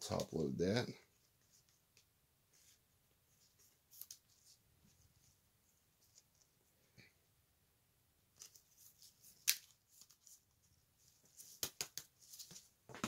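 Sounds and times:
cards rustling: 0:08.4 - 0:12.7.

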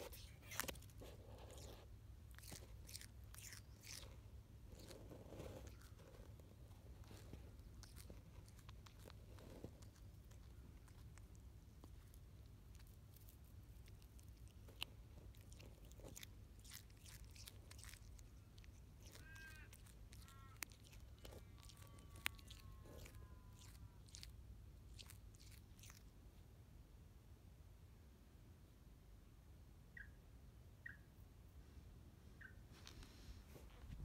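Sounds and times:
animal chewing grass: 0:00.0 - 0:26.1.

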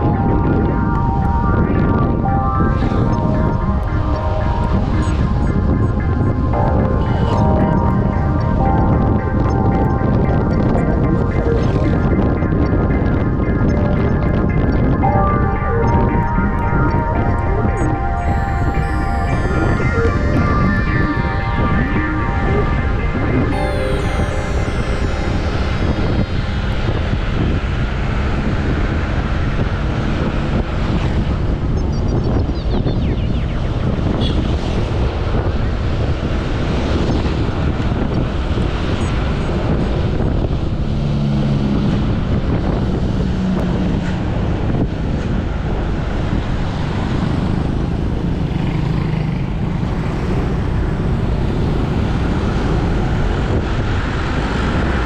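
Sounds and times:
wind rushing over microphone: 0:00.0 - 0:23.6, 0:24.6 - 0:55.0
road noise: 0:25.3 - 0:55.0.

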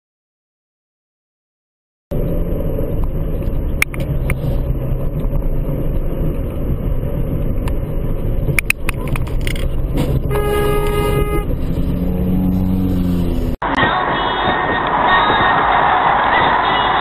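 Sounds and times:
road and engine rumble inside car: 0:02.1 - 0:17.0
car horn blast: 0:10.2 - 0:11.6.

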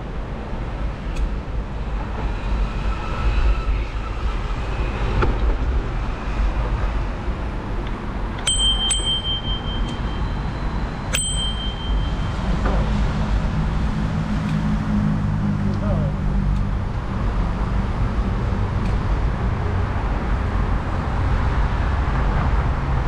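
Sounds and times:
low wind and riding rumble: 0:00.0 - 0:23.0
bicycle bell ringing: 0:08.4 - 0:12.6.

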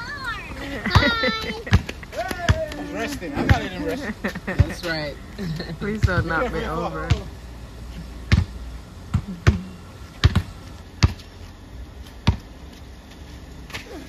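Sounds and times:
basketball bouncing on concrete: 0:00.9 - 0:03.9, 0:04.6 - 0:04.9, 0:06.0 - 0:06.4, 0:07.0 - 0:07.3, 0:08.3 - 0:11.3, 0:12.2 - 0:12.5.

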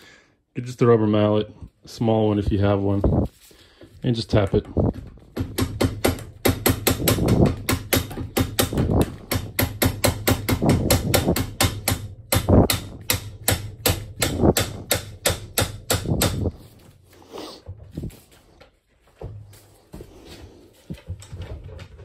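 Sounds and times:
rubber mallet tapping aluminium: 0:05.4 - 0:16.6.

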